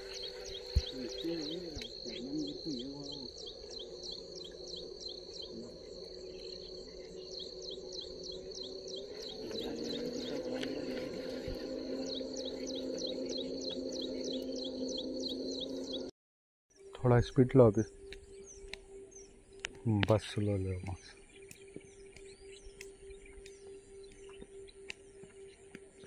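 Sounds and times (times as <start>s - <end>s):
insects trilling and chirping: 0.0s - 16.1s, 16.7s - 26.0s
low steady hum: 0.0s - 16.1s.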